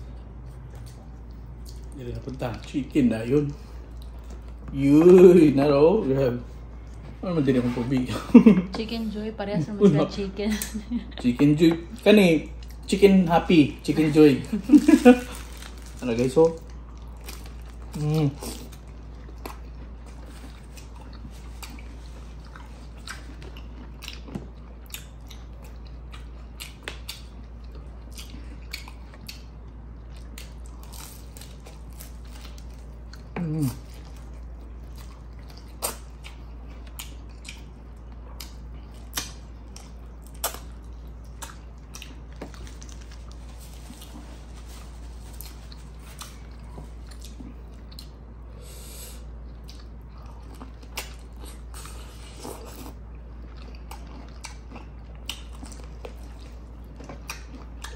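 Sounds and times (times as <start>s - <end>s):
steady low hum: 0.0s - 57.9s
person biting and chewing: 16.7s - 44.3s, 49.0s - 57.9s.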